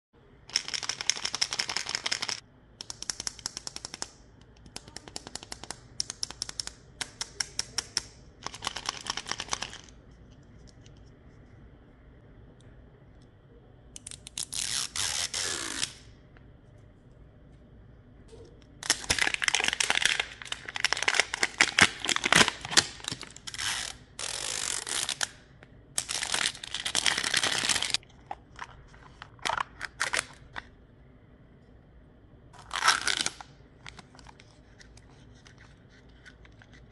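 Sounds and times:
packaging crinkling: 18.8s - 23.6s, 26.0s - 30.6s.

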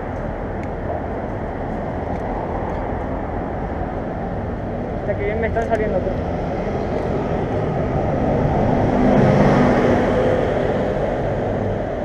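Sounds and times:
traffic hum: 0.0s - 12.0s
vehicle passing close by: 6.0s - 12.0s.

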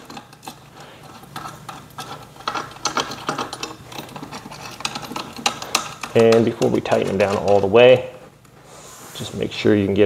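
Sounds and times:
metal bolts clicking and scraping: 0.0s - 8.0s.

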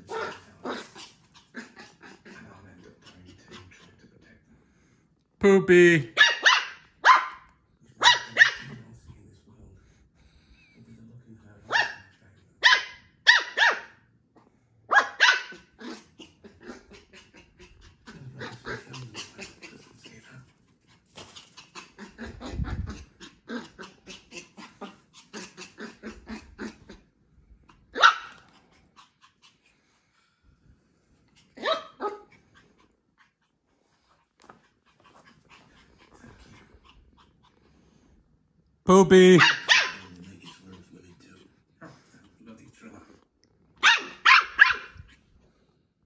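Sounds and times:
puppy barking: 6.1s - 8.8s, 11.6s - 14.0s, 14.9s - 16.0s, 27.9s - 28.5s, 31.6s - 32.3s, 39.3s - 40.2s, 43.8s - 45.0s.

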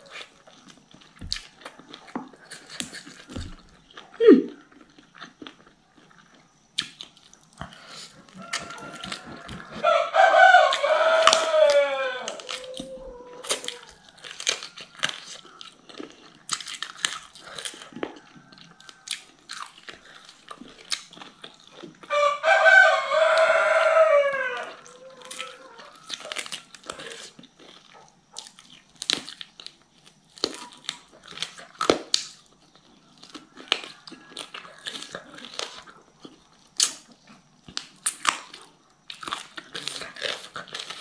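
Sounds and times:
chewing and crunching bones: 0.0s - 41.0s
rooster crowing: 8.2s - 15.7s, 17.8s - 19.5s, 22.0s - 27.3s, 32.9s - 35.9s.

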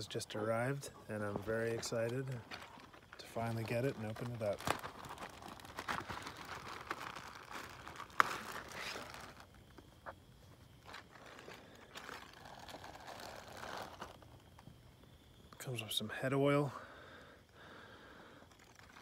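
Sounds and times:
plastic bag crinkling: 1.7s - 9.9s, 10.8s - 14.6s, 18.5s - 19.0s.

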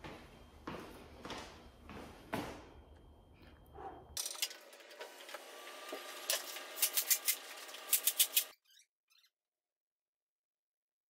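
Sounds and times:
tools and metal parts clinking: 4.2s - 5.0s, 6.3s - 8.6s.

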